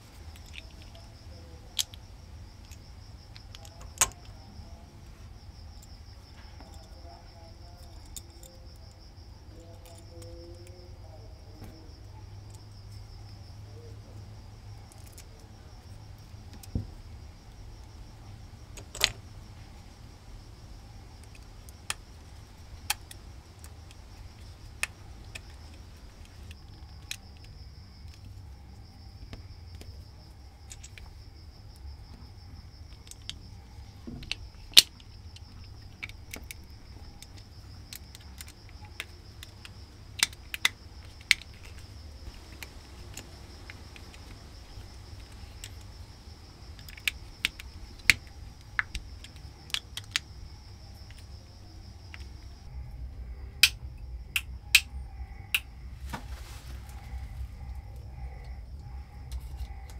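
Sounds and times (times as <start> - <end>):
sharp clicks and light knocks: 0.1 - 4.5, 14.8 - 17.0, 18.7 - 19.3, 21.2 - 28.4, 29.2 - 51.4
low rumble: 50.5 - 59.9.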